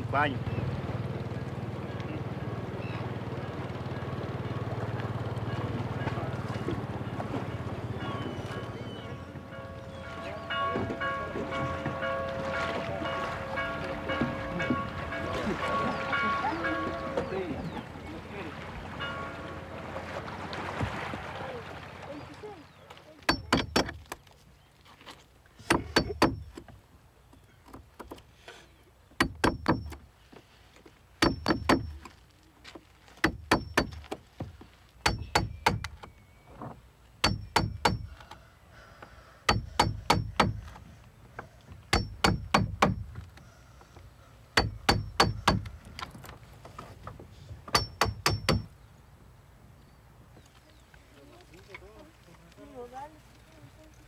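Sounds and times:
hammer ringing on metal iron: 31.2s - 32.0s, 35.1s - 35.8s, 37.2s - 38.1s, 39.5s - 40.6s, 41.9s - 43.1s, 44.6s - 45.7s, 47.7s - 48.7s.

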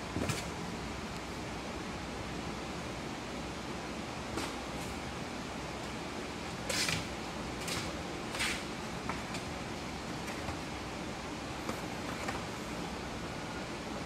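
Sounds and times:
kitten scratching cardboard box: 6.6s - 9.4s.

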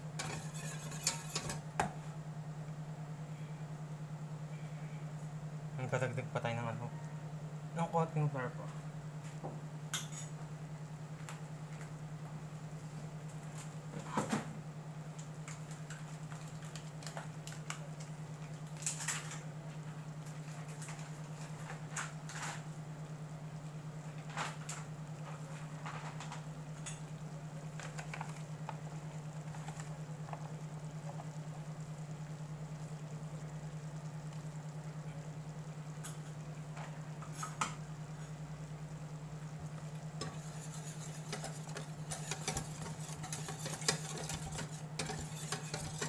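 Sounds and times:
roux crackling in a saucepan: 0.0s - 1.8s, 15.1s - 46.0s
electric cooktop humming: 0.0s - 46.0s.

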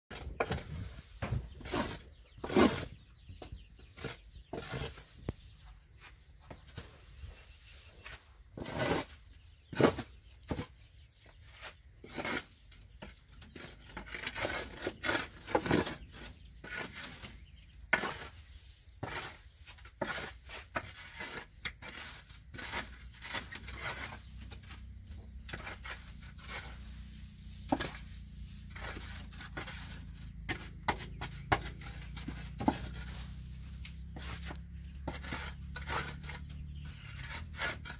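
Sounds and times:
rice husk bedding rustling by hand: 25.5s - 36.4s.

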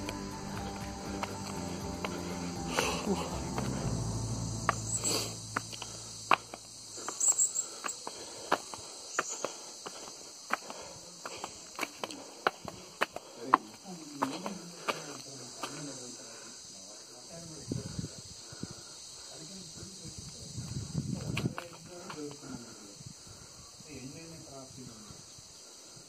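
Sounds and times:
sandal footsteps on stone steps: 0.0s - 15.9s, 20.6s - 22.4s
insects buzzing: 0.0s - 26.0s.

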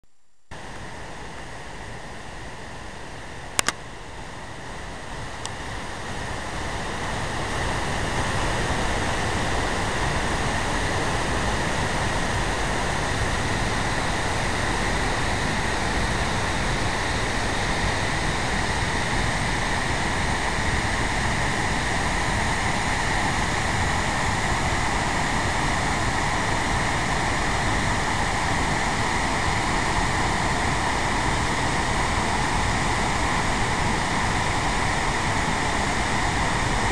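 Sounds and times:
waterfall rushing: 0.6s - 36.9s.

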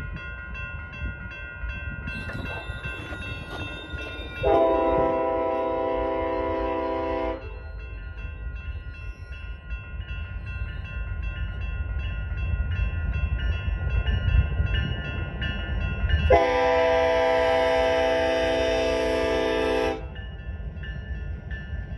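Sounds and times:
railroad crossing bells dinging: 0.0s - 21.9s
locomotive air horn: 4.4s - 7.6s, 16.3s - 20.2s.

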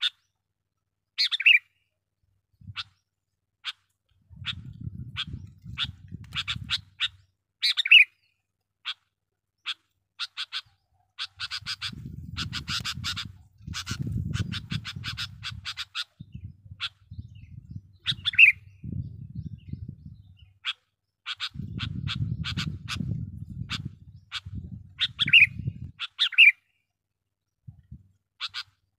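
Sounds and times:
bird chattering calls: 1.2s - 1.6s, 4.4s - 8.1s, 9.6s - 18.7s, 20.4s - 26.6s, 28.4s - 28.8s.

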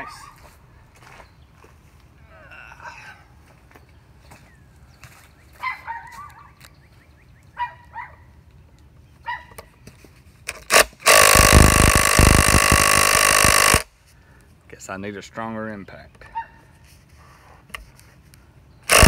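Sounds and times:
impact driver hammering: 10.5s - 13.8s.

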